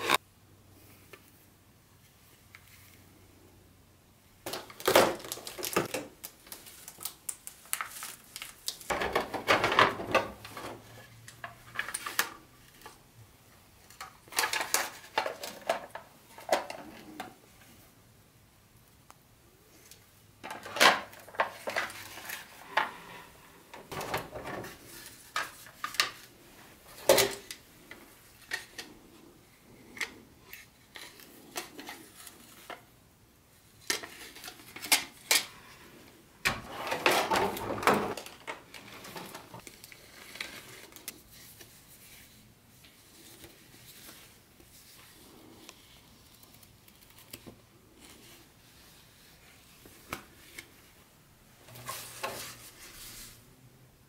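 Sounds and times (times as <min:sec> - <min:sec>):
packaging rustling: 0:04.5 - 0:09.4.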